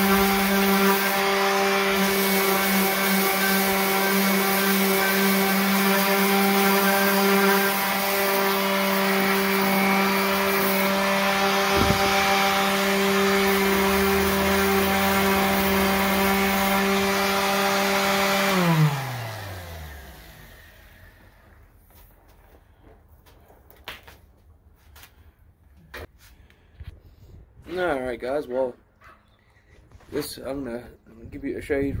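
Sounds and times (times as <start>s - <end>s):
electric sander sanding metal: 0.0s - 21.6s
sander motor winding down: 0.0s - 21.7s.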